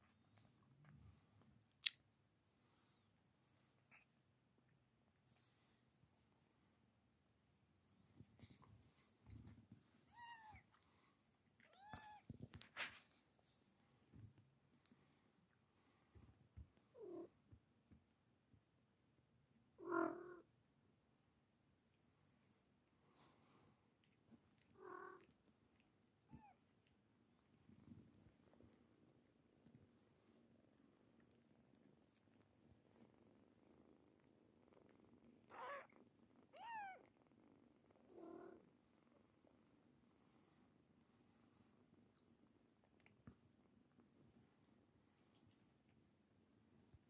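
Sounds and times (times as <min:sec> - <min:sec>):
soft purring: 0:00.0 - 0:47.0
cat meowing: 0:36.5 - 0:37.1.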